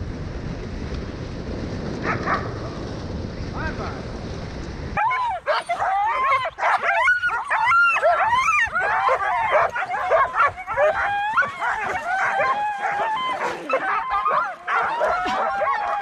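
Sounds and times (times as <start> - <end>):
sled dogs barking and yelping: 5.0 - 16.0.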